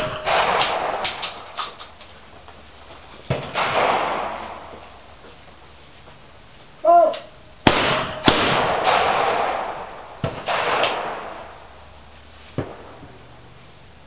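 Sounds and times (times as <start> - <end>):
shotgun shots echoing: 0.0 - 2.0, 3.3 - 5.1, 7.6 - 11.9, 12.6 - 13.6
person shouting: 6.8 - 7.3.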